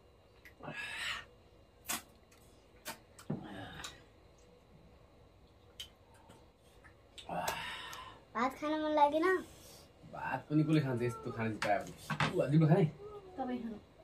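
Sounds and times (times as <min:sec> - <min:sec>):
mouth clicks and lip smacks: 0:01.8 - 0:03.3, 0:05.7 - 0:07.3.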